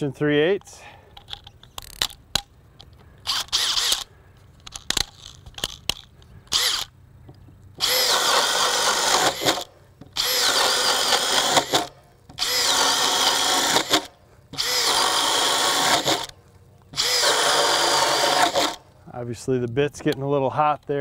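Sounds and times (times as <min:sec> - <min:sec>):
drill clicks: 0:01.1 - 0:18.8
drill spinning: 0:03.2 - 0:04.1, 0:06.5 - 0:06.9, 0:07.8 - 0:16.4, 0:17.0 - 0:18.8
drill boring into wood: 0:03.3 - 0:04.1, 0:06.5 - 0:06.9, 0:07.8 - 0:16.3, 0:17.0 - 0:18.8.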